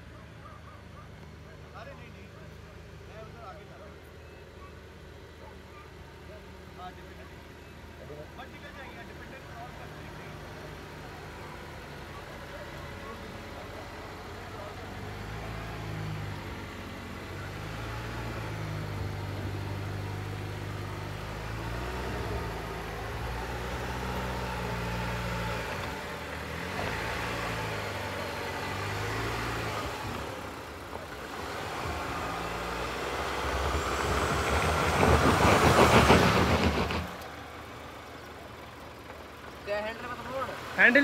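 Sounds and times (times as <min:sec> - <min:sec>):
off-road vehicle engine running: 0:00.0 - 0:41.0.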